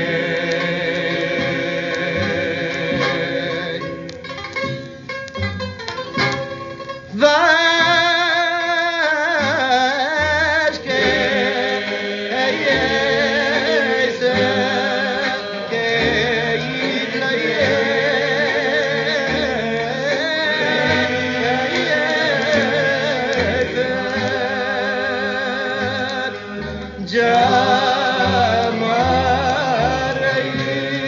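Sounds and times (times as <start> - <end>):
voices singing with vibrato: 0.0 - 4.6, 7.0 - 31.0.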